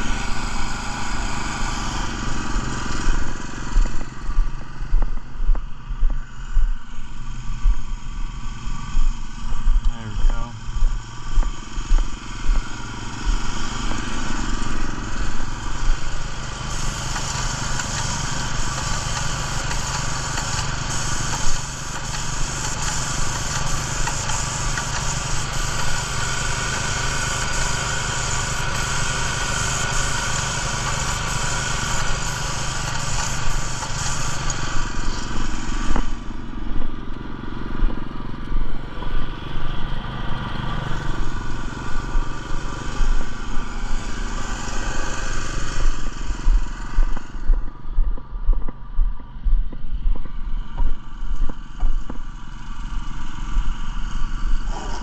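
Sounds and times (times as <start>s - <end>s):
spray gun hissing: 0.0s - 4.9s, 11.6s - 36.8s, 40.7s - 47.4s
small gas engine running: 0.0s - 55.0s.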